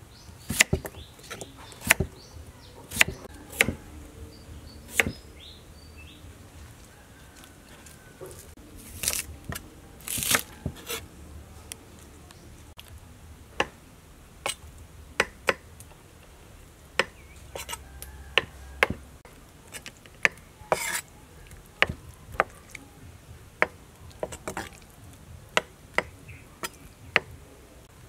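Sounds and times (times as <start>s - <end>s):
cleaver chopping on wooden block: 0.5s - 2.2s, 2.9s - 3.8s, 4.9s - 5.2s, 9.0s - 11.0s, 15.2s - 15.6s, 17.0s - 17.8s, 18.4s - 19.0s, 20.2s - 21.0s, 21.8s - 22.5s, 25.6s - 27.3s.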